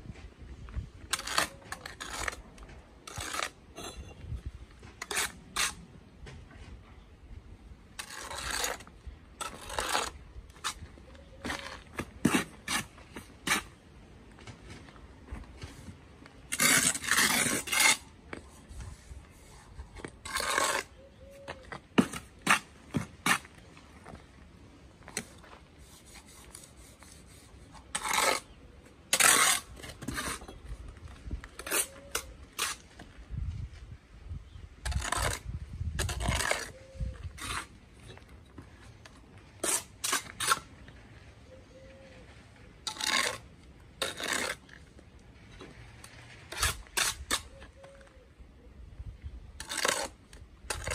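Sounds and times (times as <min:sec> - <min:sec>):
trowel scraping on mortar board: 0:01.1 - 0:04.3, 0:04.9 - 0:05.8, 0:08.0 - 0:13.8, 0:15.6 - 0:23.7, 0:25.1 - 0:30.8, 0:31.5 - 0:33.1, 0:34.8 - 0:38.3, 0:39.6 - 0:40.9, 0:42.8 - 0:45.0, 0:46.0 - 0:47.9, 0:49.6 - 0:50.9.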